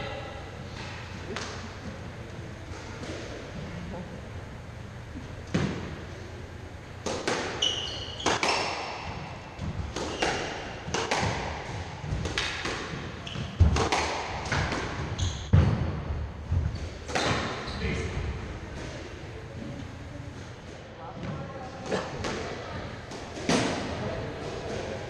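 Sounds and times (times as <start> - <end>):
squash ball cracks: 7.0 - 7.6, 9.9 - 11.6, 12.2 - 13.0, 13.6 - 14.9.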